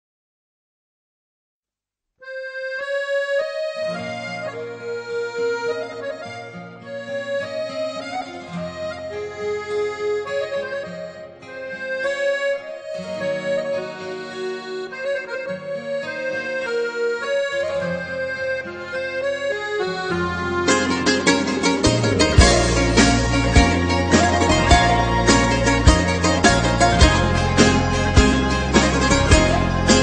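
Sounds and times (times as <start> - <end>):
sustained melody over chords: 15.7 - 30.0
band with plucked strings: 20.6 - 30.0.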